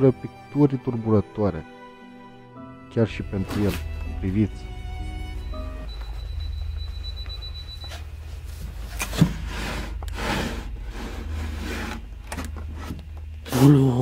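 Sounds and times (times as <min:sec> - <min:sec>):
steady low hum: 0:03.3 - 0:14.0
thin high tone: 0:03.7 - 0:08.0
wooden drawer scraping: 0:08.8 - 0:13.2.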